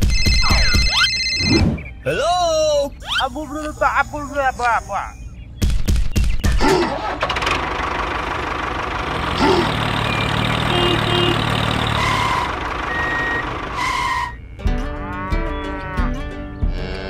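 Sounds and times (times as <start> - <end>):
short beeps: 0.0 - 2.0
tractor engine running: 6.8 - 14.9
music: 14.3 - 17.0.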